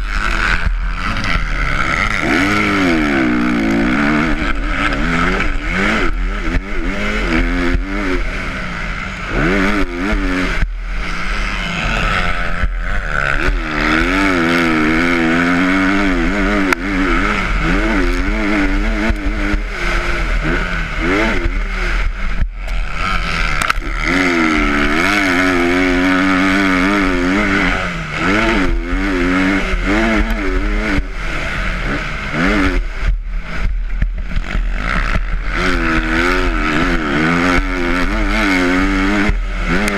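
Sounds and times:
dirt bike engine revving: 0.0 - 39.9
wind and track noise: 0.0 - 39.9.

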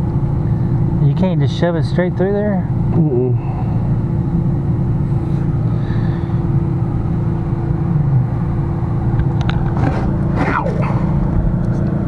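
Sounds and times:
low mechanical drone with hum: 0.0 - 12.0.

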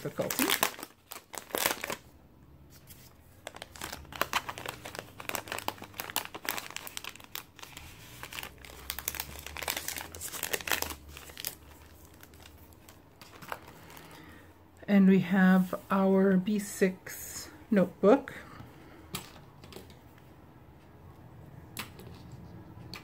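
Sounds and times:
plastic sleeve crinkling: 0.0 - 2.1, 2.7 - 14.5.

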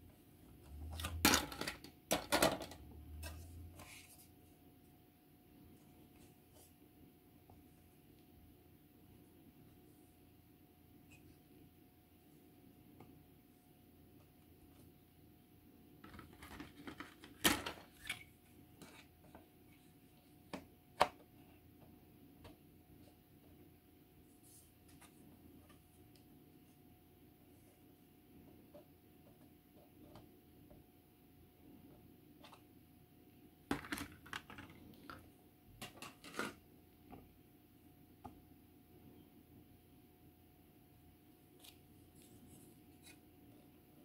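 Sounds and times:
plastic parts rustling and scraping: 0.8 - 4.3, 16.0 - 19.9, 33.7 - 37.2.

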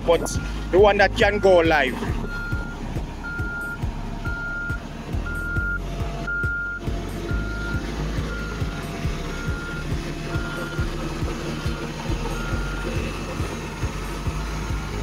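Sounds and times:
low engine rumble: 0.0 - 15.0
reversing alarm beeps: 0.2 - 8.7, 9.3 - 10.9, 12.3 - 13.0.

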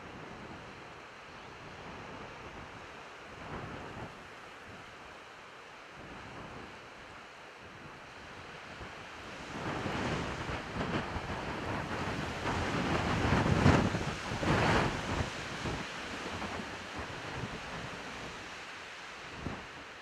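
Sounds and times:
wind buffeting microphone: 9.5 - 18.3.

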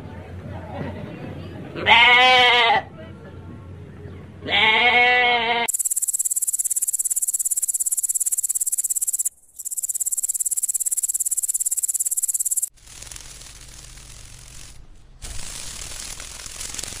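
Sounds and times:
sheep bleating: 1.8 - 2.8, 4.4 - 5.7
grasshopper chirring: 5.7 - 17.0.

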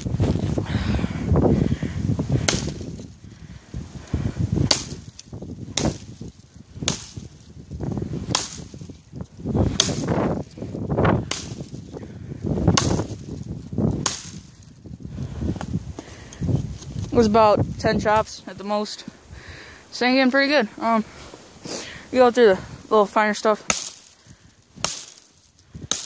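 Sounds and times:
axe chopping branches: 2.3 - 3.2, 4.2 - 14.7, 23.6 - 26.0.

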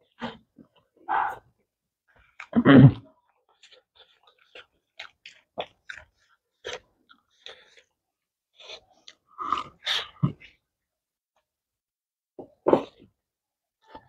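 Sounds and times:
wet chewing: 3.2 - 10.6.

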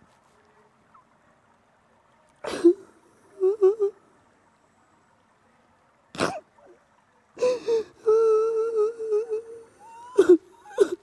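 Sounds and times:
woman sobbing: 2.4 - 4.0, 7.4 - 11.0.

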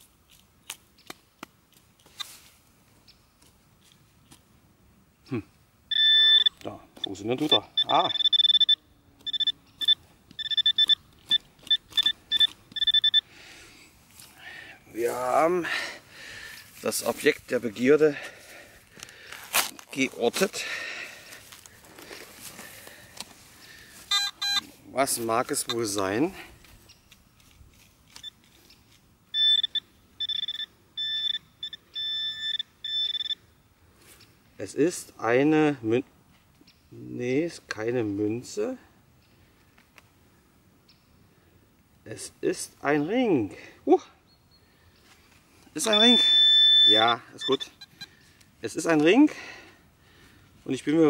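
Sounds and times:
metal detector probe beeping: 5.9 - 13.3, 24.1 - 24.7, 25.5 - 26.1, 29.3 - 33.4, 45.7 - 48.2
probe in loose soil: 5.9 - 33.4, 45.0 - 51.0.

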